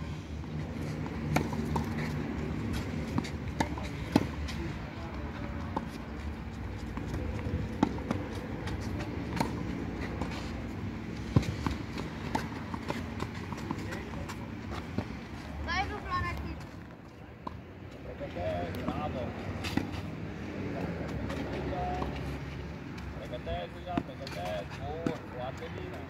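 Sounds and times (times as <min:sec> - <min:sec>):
rackets striking tennis ball: 0:06.7 - 0:15.2.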